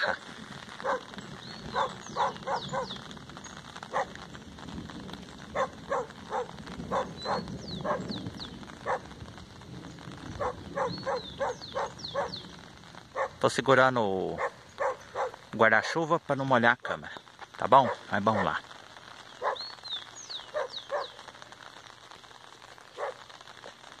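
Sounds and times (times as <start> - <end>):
dog barking: 0.8 - 3.0, 3.9 - 4.2, 5.5 - 8.1, 8.8 - 9.1, 10.4 - 12.4, 13.1 - 13.4, 14.4 - 15.4, 17.8 - 18.6, 19.4 - 19.6, 20.5 - 21.2, 23.0 - 23.8.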